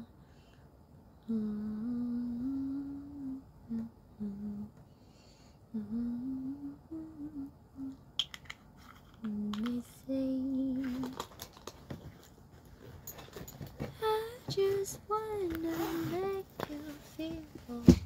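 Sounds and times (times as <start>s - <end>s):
woman humming: 1.2s - 4.8s, 5.7s - 8.0s
handling clicks and rustles: 10.8s - 14.6s.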